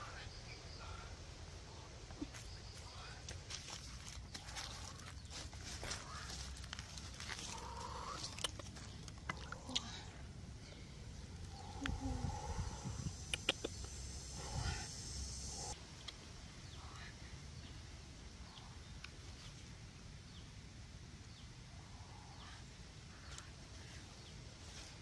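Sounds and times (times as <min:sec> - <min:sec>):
faint forest ambience: 0:00.0 - 0:25.0
high steady buzz: 0:11.1 - 0:15.8
sharp clicks: 0:13.2 - 0:14.0.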